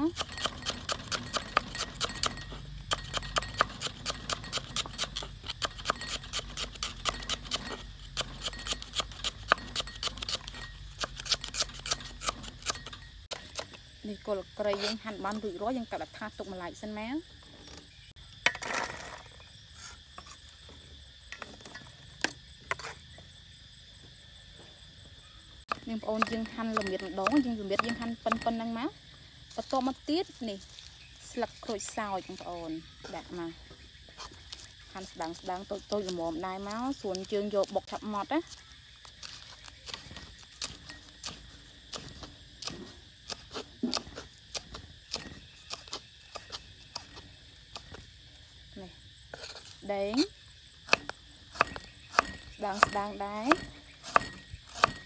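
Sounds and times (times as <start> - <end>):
knife chopping on wooden board: 50.9 - 55.0.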